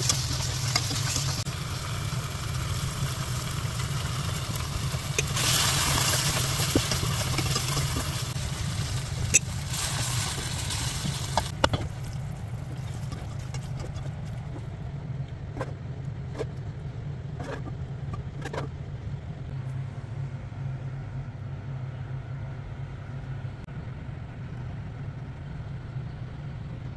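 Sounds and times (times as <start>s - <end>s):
spatula stirring in a pot: 0.0s - 1.5s, 2.7s - 14.8s
curry sizzling in a pot: 0.0s - 13.8s
low mechanical hum: 0.0s - 26.9s.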